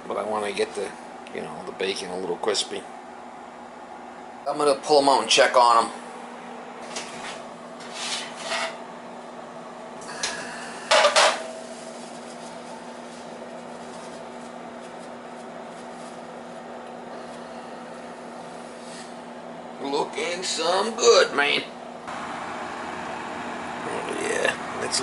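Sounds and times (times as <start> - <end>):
steady hum: 0.0 - 25.0.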